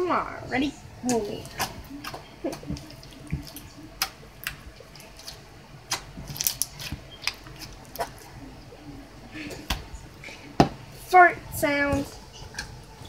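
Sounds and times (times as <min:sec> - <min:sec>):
slime being squished by hand: 0:01.1 - 0:08.3.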